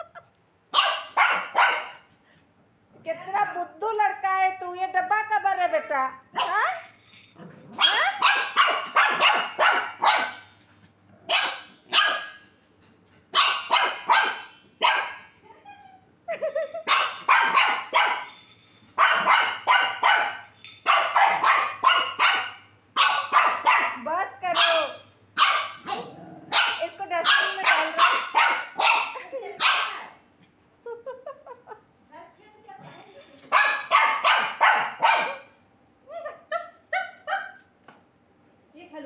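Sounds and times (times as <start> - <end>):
small dog barking: 0.7 - 2.0, 7.8 - 10.5, 11.2 - 12.5, 13.3 - 15.4, 16.9 - 18.3, 19.0 - 24.0, 24.6 - 30.1, 33.5 - 35.6.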